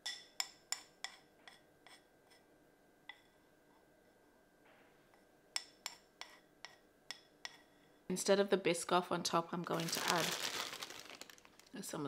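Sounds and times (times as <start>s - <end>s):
metal spoon clinking on ceramic bowl: 0.0s - 1.6s.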